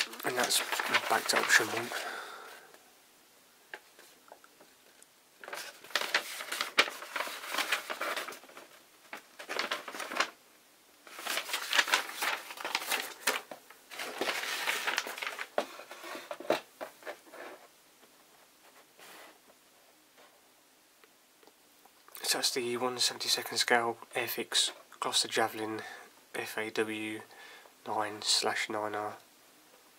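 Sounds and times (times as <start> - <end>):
paper sheet rustling: 0.0 - 2.6, 5.4 - 10.4, 11.0 - 17.7.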